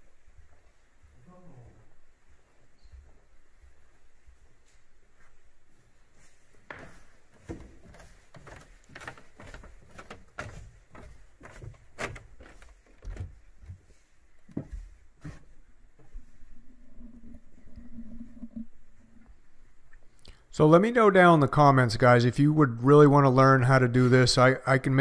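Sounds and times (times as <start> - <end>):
footsteps on hard floor: 2.3 - 16.4.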